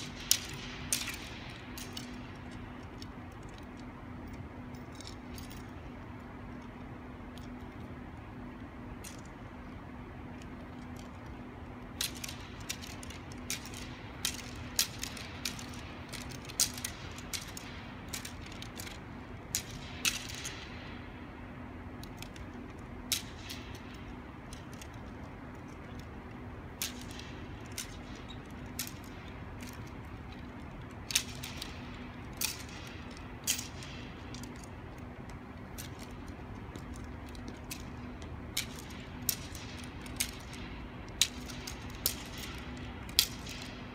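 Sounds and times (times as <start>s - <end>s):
sharp clicks and ticks: 8.6s - 21.0s, 22.0s - 43.9s.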